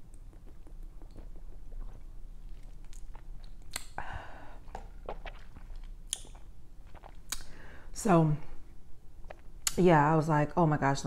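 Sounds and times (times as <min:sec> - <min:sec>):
person drinking and swallowing: 0:00.2 - 0:07.8
breathy noise: 0:04.0 - 0:04.9.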